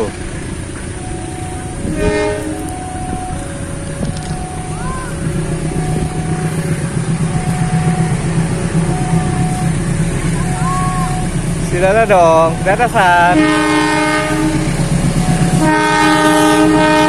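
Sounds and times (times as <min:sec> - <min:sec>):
diesel train engine rumble: 0:00.0 - 0:17.0
two-note warning tone: 0:00.0 - 0:17.0
train horn toot: 0:01.5 - 0:06.7, 0:12.9 - 0:17.0.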